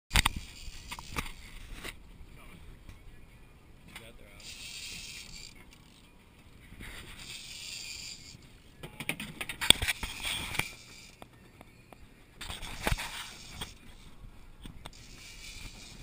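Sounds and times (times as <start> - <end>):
sharp clicks and knocks from reel: 0.1 - 2.0, 4.4 - 6.0, 7.2 - 8.4, 9.0 - 11.2, 14.8 - 16.0
fishing reel cranking: 0.2 - 1.9, 4.4 - 6.0, 7.0 - 8.6, 9.6 - 11.2, 12.4 - 14.1, 14.9 - 16.0.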